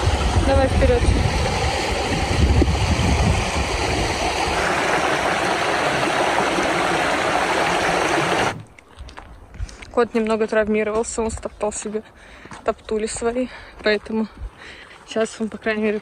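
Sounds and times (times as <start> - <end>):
low rumble: 0.0 - 6.0
stream rushing over stones: 0.0 - 8.7.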